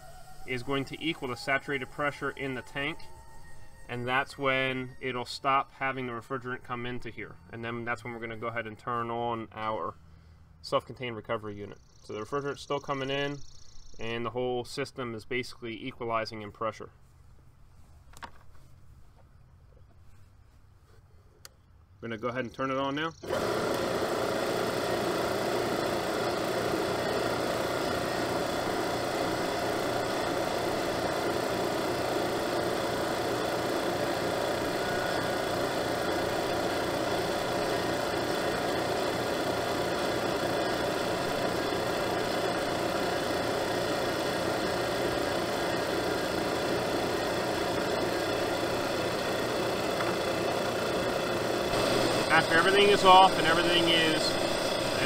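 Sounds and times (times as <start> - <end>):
recovery machine compressor running: 0.0 - 8.4, 23.2 - 55.0.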